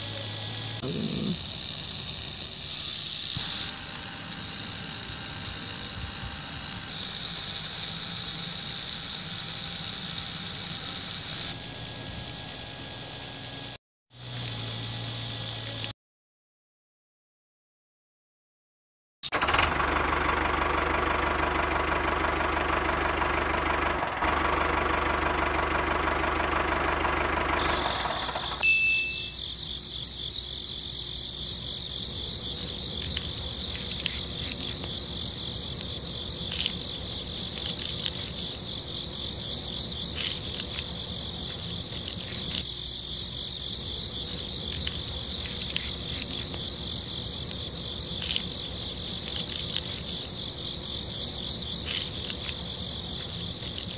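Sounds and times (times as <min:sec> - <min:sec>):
high-pitched insect chirring: 0:00.0 - 0:12.1, 0:27.6 - 0:53.9
small motor whirring: 0:00.0 - 0:16.0, 0:27.5 - 0:53.9.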